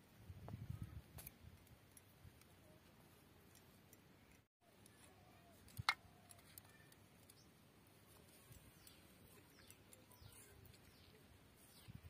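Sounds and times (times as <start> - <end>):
faint bird chirps: 4.2 - 7.6, 8.3 - 12.0.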